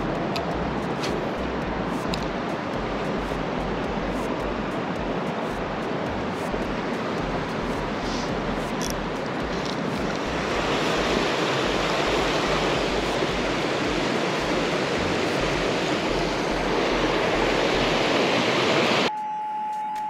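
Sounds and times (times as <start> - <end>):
flowing water rushing: 0.0 - 19.1
electronic beep: 19.1 - 20.0.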